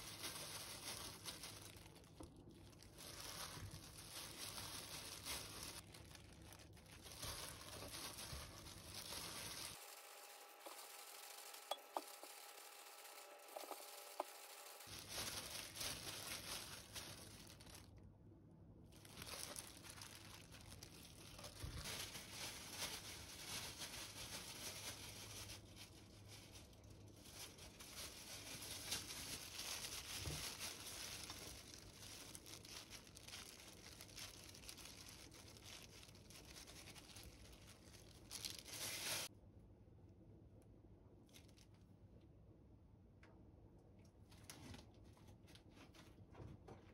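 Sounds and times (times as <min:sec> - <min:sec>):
dried seaweed sheets tearing: 0:00.0 - 0:17.9, 0:19.0 - 0:39.3
plastic glove crinkling: 0:00.0 - 0:18.1, 0:18.8 - 0:39.3, 0:41.2 - 0:41.9.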